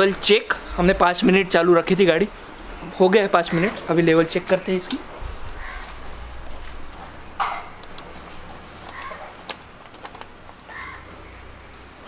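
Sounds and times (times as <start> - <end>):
bird calling: 5.4 - 6.3, 8.8 - 9.4, 10.7 - 11.4.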